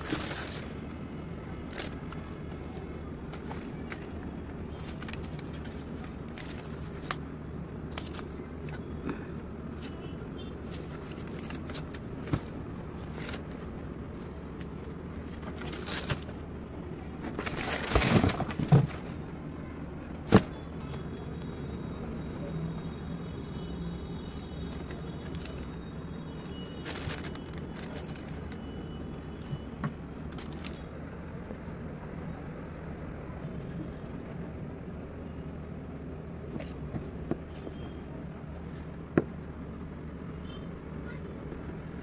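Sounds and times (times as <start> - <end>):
cardboard box rustling and knocks: 17.2 - 19.2.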